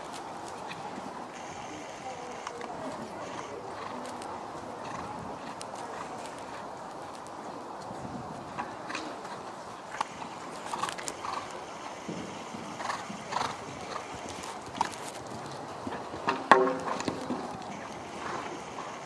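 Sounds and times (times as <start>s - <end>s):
horse hoofbeats cantering: 7.8s - 19.0s.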